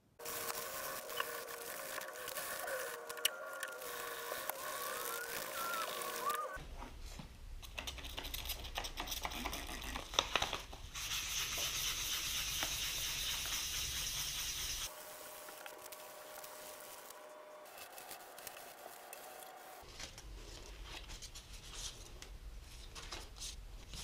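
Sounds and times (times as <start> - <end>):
hand sanding strokes: 0.2 - 6.6, 11.0 - 19.7.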